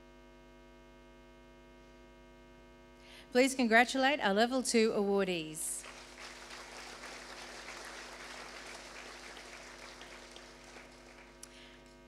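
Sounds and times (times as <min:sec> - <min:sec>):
steady electrical hum: 0:00.0 - 0:12.0
audience clapping: 0:05.8 - 0:12.0.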